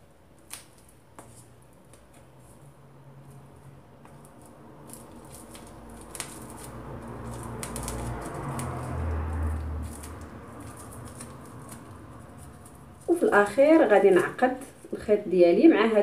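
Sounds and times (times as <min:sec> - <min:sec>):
thread rustling and clicking: 0:04.0 - 0:14.9.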